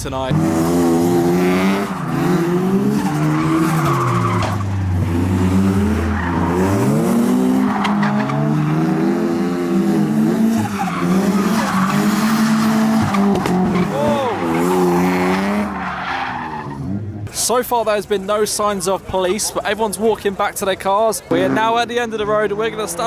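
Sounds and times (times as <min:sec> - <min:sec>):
tyres skidding and squealing: 0:00.0 - 0:23.0
car engine revving hard: 0:00.2 - 0:15.9.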